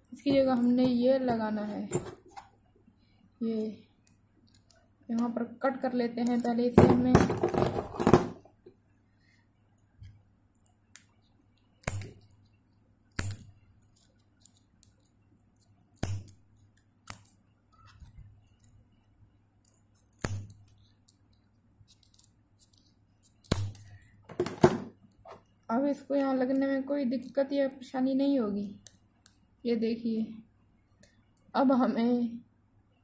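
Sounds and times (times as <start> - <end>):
scissors snipping circuit board: 6.1 - 6.7, 13.1 - 18.1.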